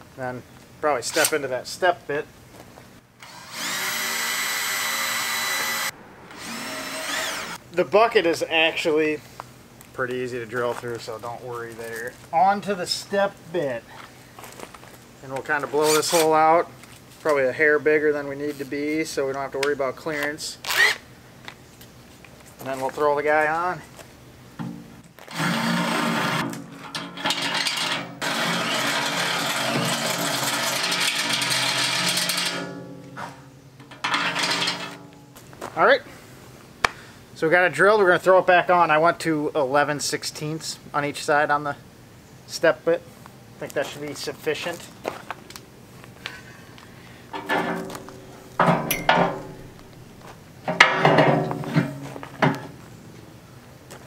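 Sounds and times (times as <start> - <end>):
power drill boring metal: 3.2 - 7.6, 25.3 - 26.4, 27.4 - 32.7
metal clanking and scraping: 26.4 - 35.4, 47.3 - 52.8.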